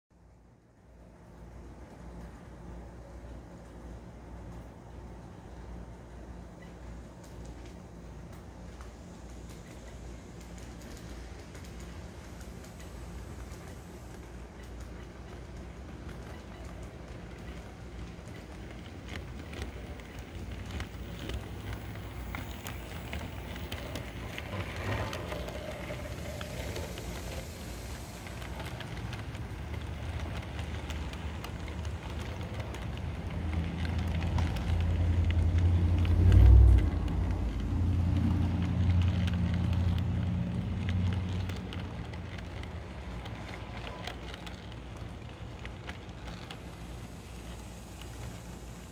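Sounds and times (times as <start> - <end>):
model train wheels rumbling: 1.0 - 48.9
clicks over rail joints: 10.4 - 48.4.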